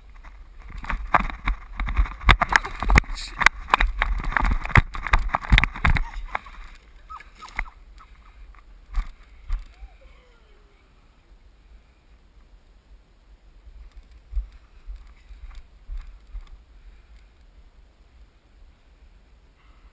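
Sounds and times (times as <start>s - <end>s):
camera handling knocks and rustling: 0.6s - 6.5s.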